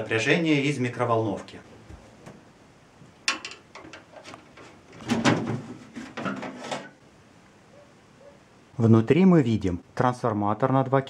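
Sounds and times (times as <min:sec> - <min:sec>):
sheet metal clattering and scraping: 0:03.3 - 0:07.0.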